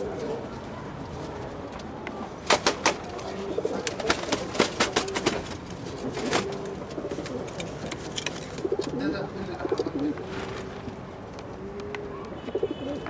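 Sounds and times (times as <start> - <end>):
pigeons cooing: 2.9 - 7.8, 8.5 - 10.2.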